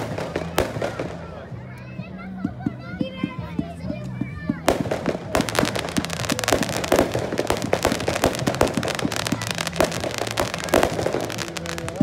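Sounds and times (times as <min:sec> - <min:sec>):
fireworks pops and crackles: 0:00.0 - 0:12.0
sharp firework bangs: 0:04.7 - 0:12.0.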